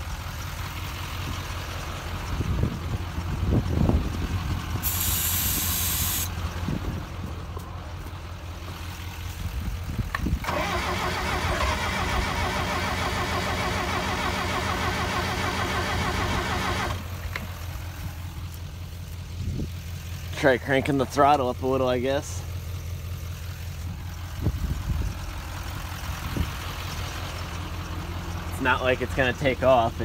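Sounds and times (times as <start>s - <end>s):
engine idling: 0.0s - 30.0s
aerosol spraying: 4.8s - 6.3s
starter cranking engine: 9.9s - 17.7s.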